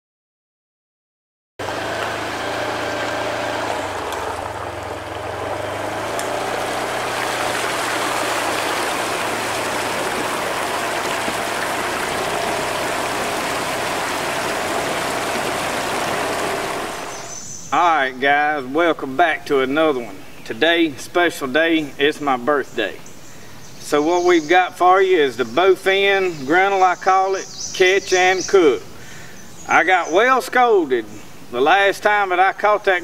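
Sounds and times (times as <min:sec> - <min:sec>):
water rushing and splashing: 0:01.6 - 0:17.4
vehicle engine running: 0:01.6 - 0:17.7.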